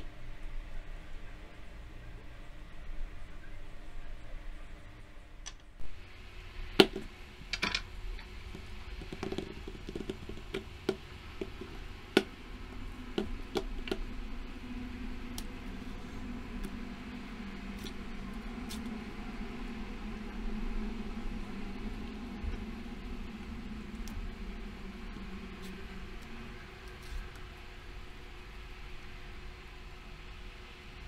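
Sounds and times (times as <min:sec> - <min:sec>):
low steady hum: 0:00.0 - 0:31.0
bananas knocking on stone countertop: 0:08.5 - 0:12.3.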